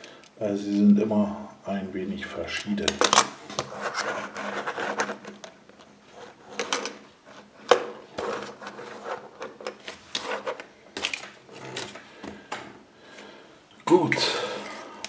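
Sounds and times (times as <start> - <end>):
plastic boards rubbing: 3.6 - 5.4, 8.0 - 12.4.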